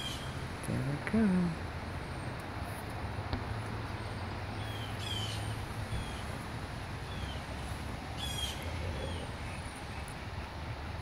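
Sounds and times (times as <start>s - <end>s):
bird chirping: 0.0s - 0.4s, 3.8s - 6.4s, 7.0s - 10.3s
outdoor background hiss: 0.0s - 11.0s.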